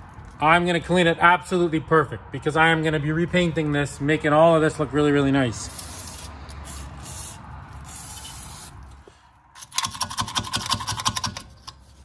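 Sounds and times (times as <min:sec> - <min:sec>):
aerosol spraying: 0:05.7 - 0:08.8.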